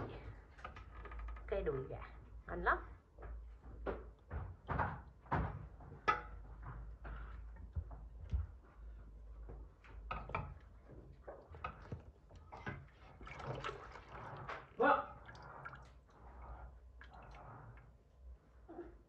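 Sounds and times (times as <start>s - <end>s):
cookware and utensils clattering: 6.0s - 6.6s.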